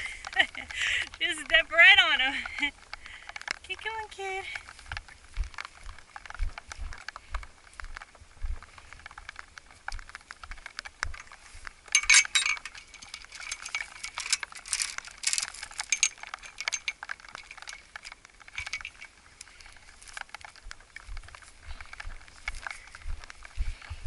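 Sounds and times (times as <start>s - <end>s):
chain-link gate rattling: 9.1s - 23.3s.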